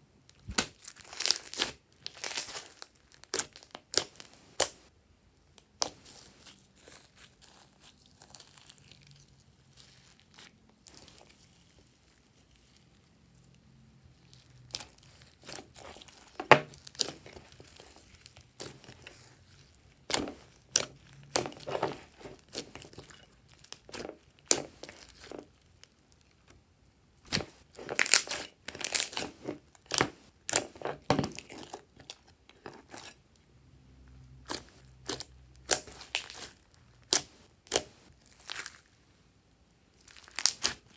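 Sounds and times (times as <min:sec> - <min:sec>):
hands squishing slime: 0:00.4 - 0:04.9, 0:14.1 - 0:25.8, 0:27.3 - 0:33.2, 0:34.4 - 0:38.8, 0:40.0 - 0:40.9.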